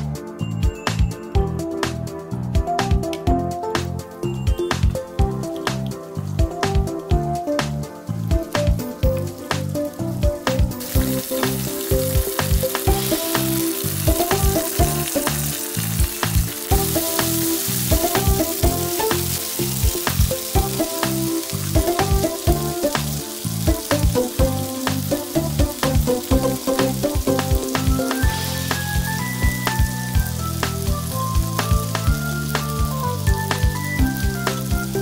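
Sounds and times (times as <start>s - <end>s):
music with a steady beat: 0.0s - 35.0s
meat sizzling in a frying pan: 8.0s - 35.0s.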